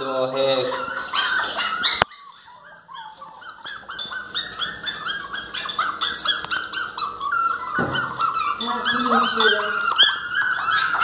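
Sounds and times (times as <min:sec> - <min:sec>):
puppy whining and crying: 0:00.0 - 0:11.0.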